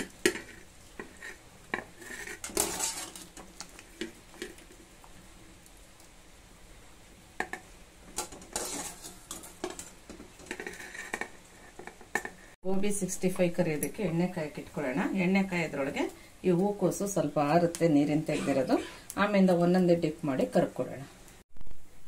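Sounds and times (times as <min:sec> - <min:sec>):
wire skimmer scraping steel pot: 0:00.0 - 0:04.6, 0:08.2 - 0:12.3.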